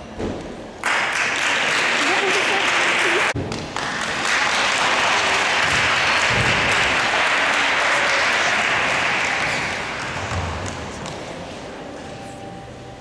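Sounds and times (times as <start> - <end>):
audience applauding: 0.8 - 11.4.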